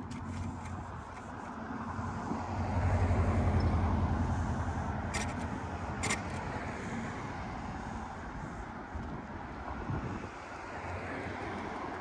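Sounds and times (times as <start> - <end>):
car passing: 0.0 - 8.6.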